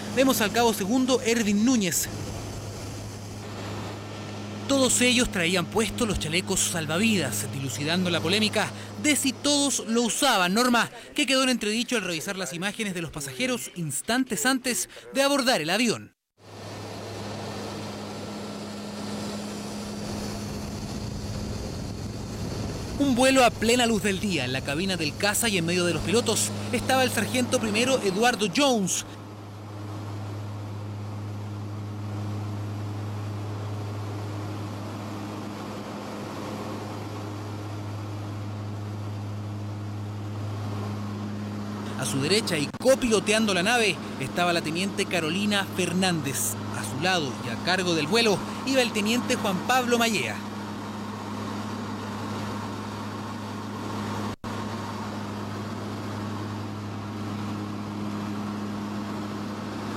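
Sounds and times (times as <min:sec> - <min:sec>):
low hum: 0:00.0 - 0:12.6, 0:16.4 - 0:59.9
turboprop engines droning: 0:00.0 - 0:15.5, 0:16.4 - 0:59.9.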